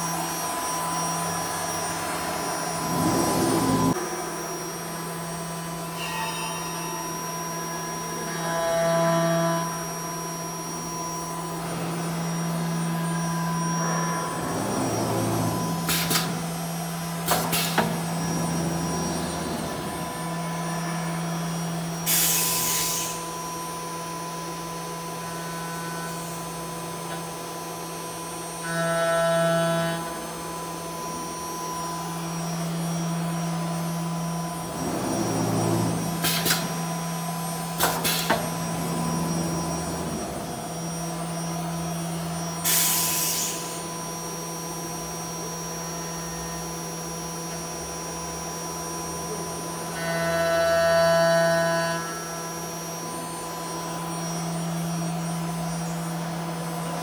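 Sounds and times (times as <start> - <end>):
cnc machine humming: 0.0 - 57.0
compressed air hisses: 42.6 - 43.7.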